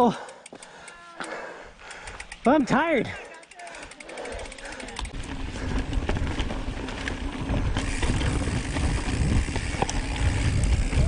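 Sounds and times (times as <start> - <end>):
bike clicks and rattles: 0.0 - 11.0
tyre and wind rumble: 4.5 - 11.0.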